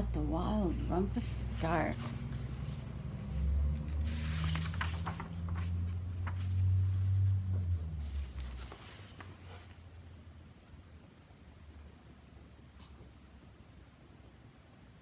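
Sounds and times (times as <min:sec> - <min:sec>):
low rumble: 0:00.8 - 0:09.0
book pages turning: 0:01.2 - 0:09.9.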